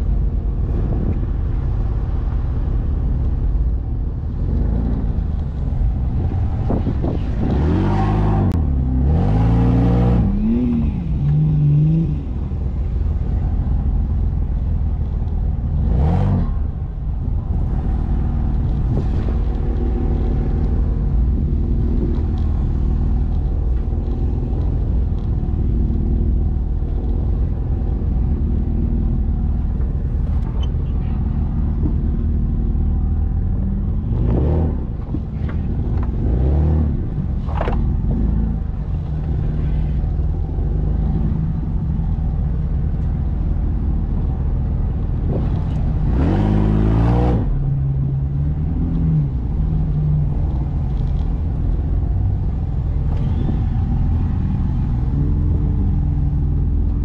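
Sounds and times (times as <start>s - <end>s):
engine rumbling at low speed: 0.0s - 57.0s.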